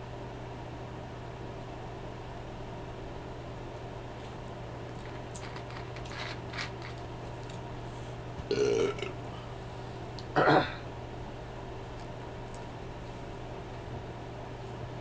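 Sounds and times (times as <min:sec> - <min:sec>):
man belching: 0:08.5 - 0:09.2, 0:10.3 - 0:10.8.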